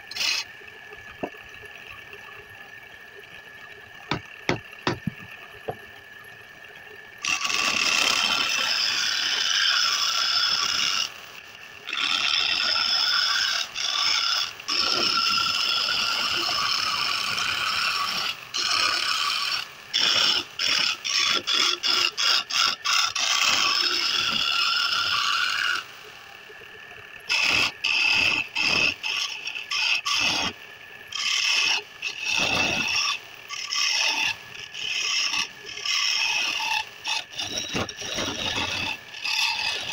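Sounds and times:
turning tool scraping wood: 0.1s - 0.5s, 4.1s - 5.4s, 7.2s - 11.1s, 11.9s - 25.8s, 31.1s - 39.9s
lathe humming: 4.1s - 6.0s.

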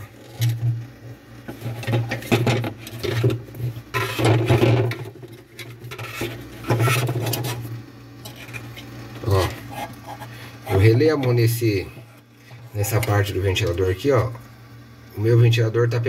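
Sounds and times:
plastic parts rubbing and clicking: 1.5s - 7.6s.

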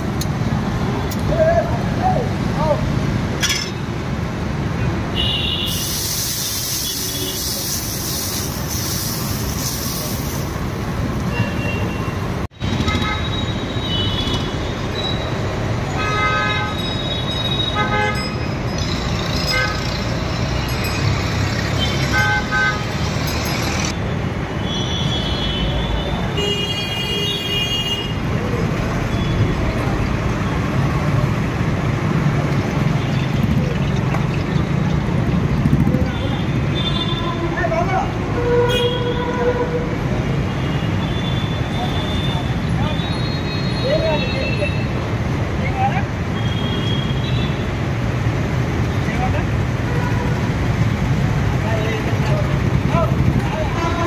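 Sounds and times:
street din: 0.0s - 54.0s
hiss: 5.6s - 10.8s
vehicle horns tooting: 11.3s - 15.2s, 15.9s - 18.5s, 21.8s - 23.1s, 24.6s - 28.3s, 38.3s - 44.9s.

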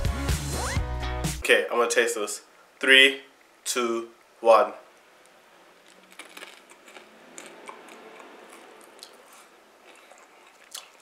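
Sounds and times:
person chewing crisp snack: 5.8s - 11.0s.

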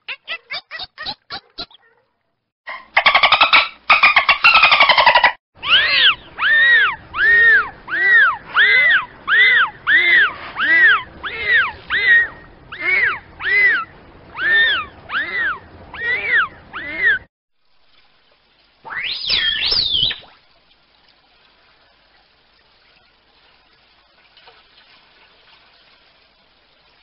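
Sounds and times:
dolphin whistling: 3.0s - 17.3s, 18.9s - 20.2s.

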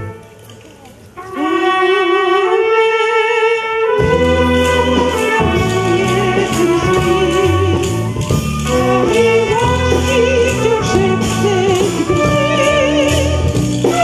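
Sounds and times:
wind orchestra playing: 0.0s - 14.0s
soprano singing with vibrato: 5.4s - 14.0s.

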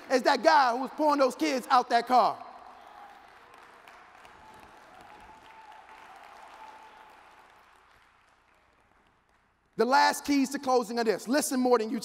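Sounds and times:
distant audience applauding: 2.5s - 9.5s.

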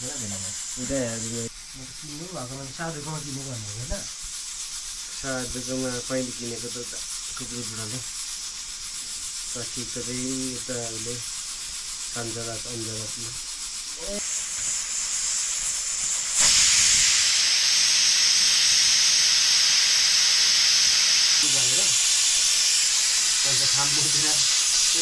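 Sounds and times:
voices talking: 0.0s - 4.1s, 21.4s - 22.0s, 23.4s - 25.0s
oil sizzling in a pan: 0.0s - 25.0s.

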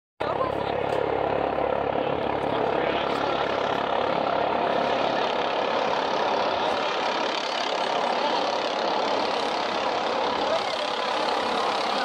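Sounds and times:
helicopter rotor rush: 0.2s - 12.0s.

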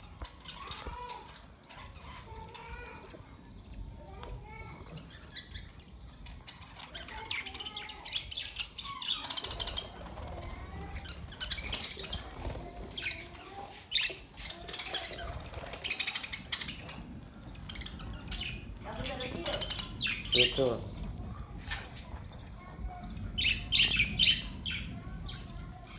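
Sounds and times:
budgerigars chirping and chattering: 0.0s - 25.9s.

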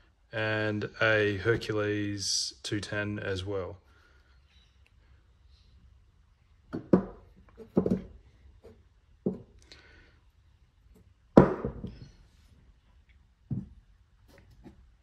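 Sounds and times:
metal parts knocking on wooden bench: 6.7s - 8.2s.

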